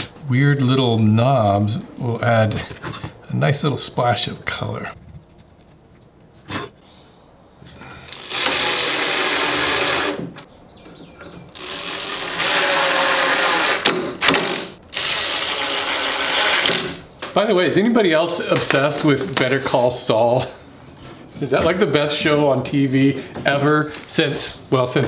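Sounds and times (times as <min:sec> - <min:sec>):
cordless drill driving screws: 0:08.1 - 0:10.3, 0:11.5 - 0:16.9.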